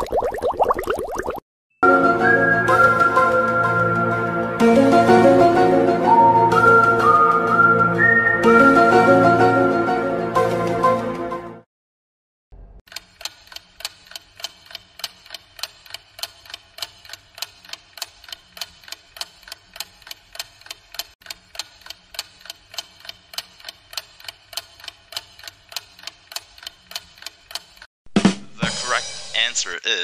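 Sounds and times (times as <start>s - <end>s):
clock ticking: 12.9s - 27.9s.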